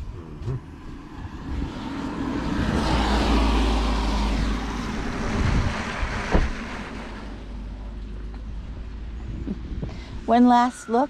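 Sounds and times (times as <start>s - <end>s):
vehicle passing on wet road: 0.6s - 9.1s
sharp thump: 6.3s - 6.6s.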